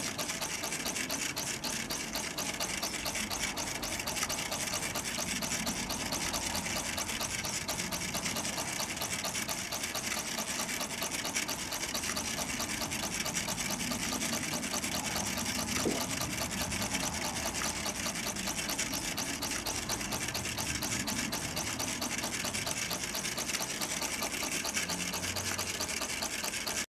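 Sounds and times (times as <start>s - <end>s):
toy steam engine chuffing: 0.0s - 26.9s.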